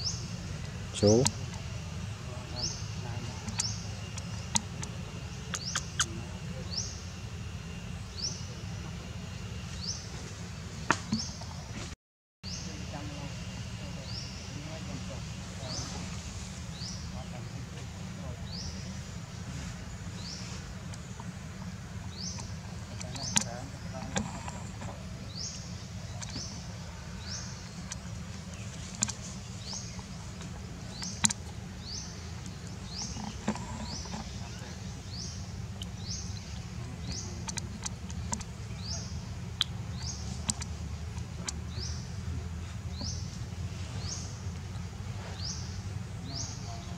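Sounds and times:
sharp clicks: 31.0 - 31.5, 37.4 - 38.5.

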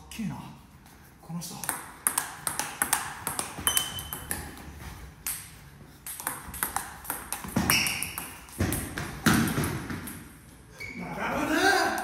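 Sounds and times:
table tennis ball clicks: 1.6 - 4.6, 5.2 - 10.2.

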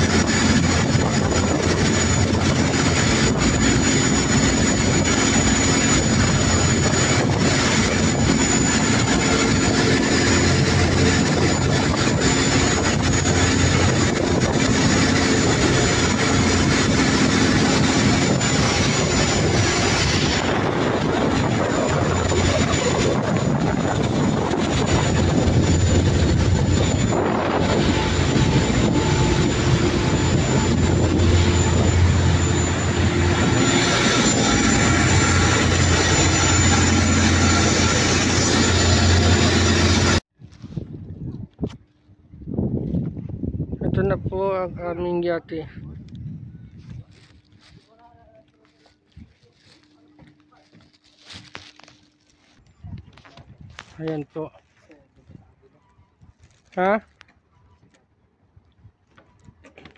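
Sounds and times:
boat engine drone: 0.0 - 40.2
water rushing along hull: 0.0 - 40.2
wind: 0.0 - 59.9.

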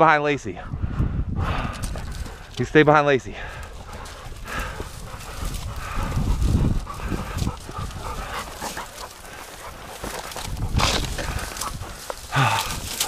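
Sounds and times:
low rumble on microphone: 0.6 - 2.6, 3.4 - 13.0
dog panting and whining: 3.4 - 12.3.

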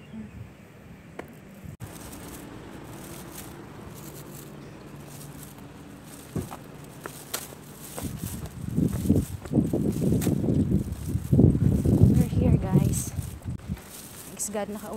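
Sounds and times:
city background hum: 0.0 - 14.9.

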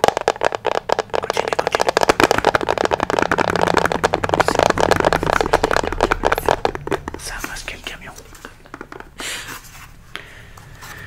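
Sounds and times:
fingernails tapping on paper: 0.0 - 7.7, 8.4 - 9.2.

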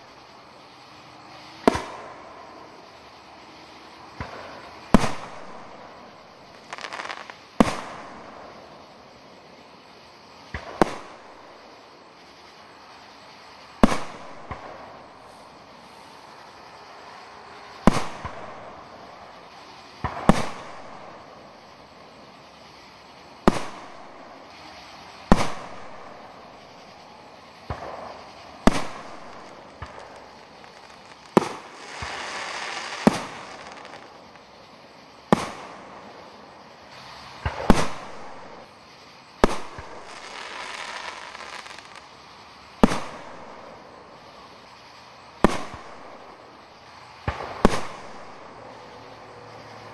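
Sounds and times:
soft hissing wash: 0.0 - 49.9
fireworks booming: 1.5 - 2.9, 4.0 - 8.9, 10.4 - 11.7, 13.7 - 22.3, 23.2 - 38.8, 39.4 - 42.1, 42.8 - 44.1, 45.4 - 48.8.

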